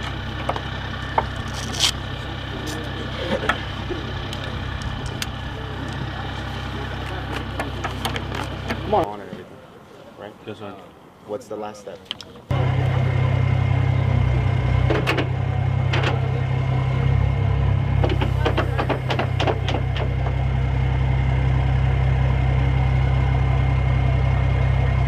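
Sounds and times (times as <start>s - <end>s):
diesel engine idling: 0.0s - 9.1s, 12.5s - 25.0s
sharp clicks and knocks: 18.0s - 20.3s.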